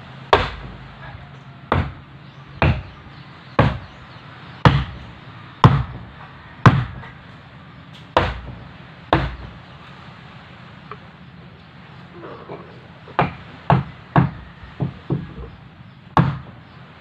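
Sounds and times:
wooden mallet knocking on wood: 0.3 - 2.0, 2.6 - 3.0, 3.6 - 4.0, 4.6 - 5.0, 5.6 - 6.0, 6.6 - 7.1, 13.2 - 15.6.

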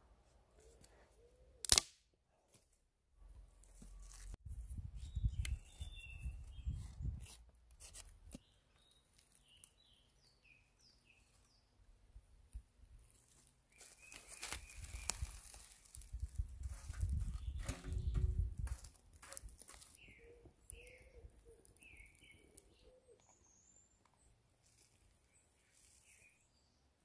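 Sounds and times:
bird chirping: 5.0 - 7.2, 8.4 - 11.8, 19.2 - 24.4
wooden sticks rustling and knocking: 13.1 - 20.9.

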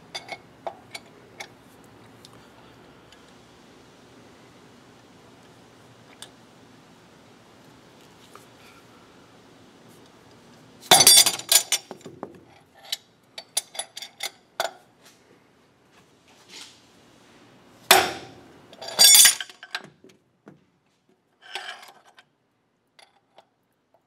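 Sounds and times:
hammer striking metal spanner: 17.9 - 19.4.

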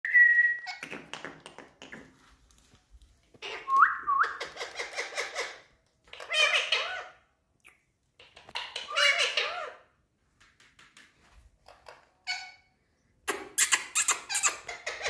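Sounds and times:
parrots chattering: 4.3 - 7.2, 8.2 - 9.9, 13.3 - 15.0.

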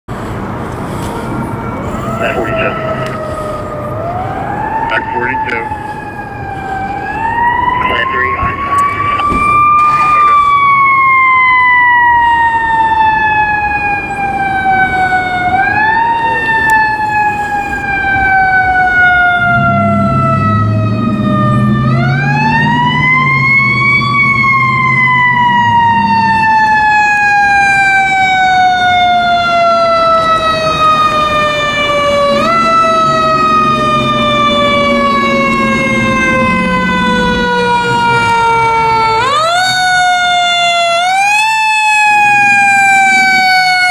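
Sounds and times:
truck low rumble: 0.1 - 43.9
fire engine siren winding: 1.0 - 43.9.

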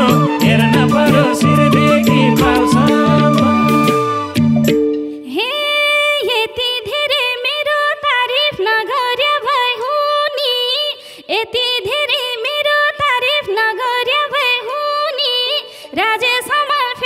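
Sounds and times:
flute melody: 0.0 - 4.9.

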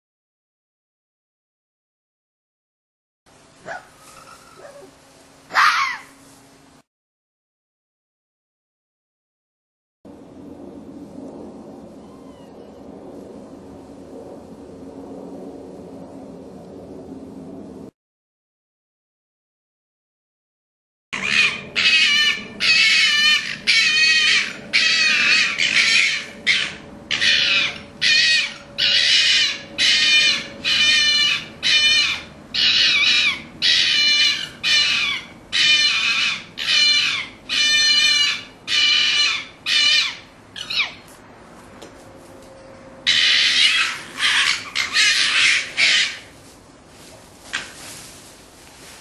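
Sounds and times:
foxes calling: 3.6 - 4.9, 5.5 - 6.2, 21.2 - 41.1, 43.1 - 46.4.

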